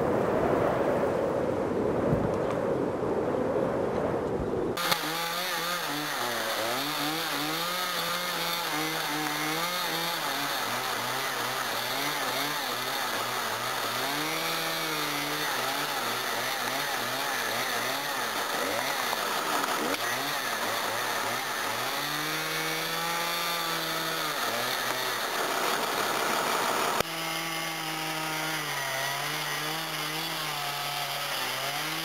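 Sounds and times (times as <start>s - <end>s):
wind on microphone: 0.0s - 4.8s
chainsaw cutting branches: 4.8s - 32.0s.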